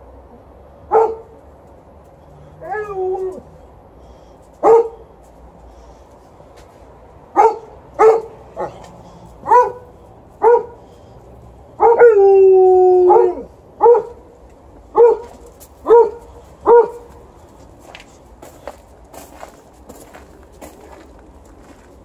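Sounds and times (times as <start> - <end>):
dogs barking: 0.9 - 1.4, 4.6 - 5.1, 7.3 - 10.9, 11.7 - 14.3, 14.9 - 17.3
dog howling: 2.6 - 3.5, 11.8 - 14.1.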